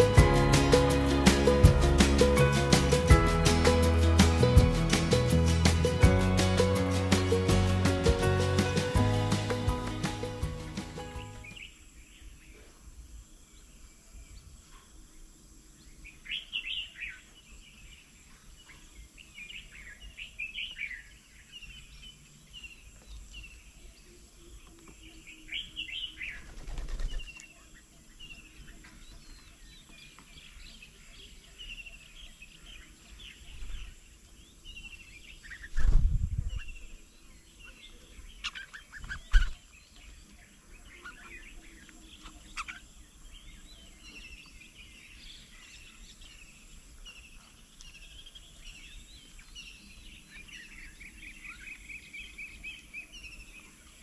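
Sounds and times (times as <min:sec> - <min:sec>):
small birds chirping: 0:00.0 - 0:54.0
loud low thumps: 0:00.1 - 0:11.4.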